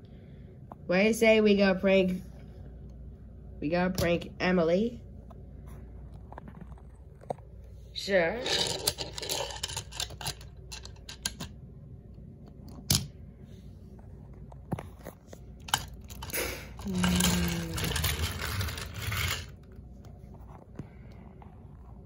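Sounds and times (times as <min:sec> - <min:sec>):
toy trains scraping and rattling: 0:08.0 - 0:11.5, 0:15.6 - 0:19.7
toy trains clicking: 0:08.4 - 0:11.5, 0:15.7 - 0:19.6.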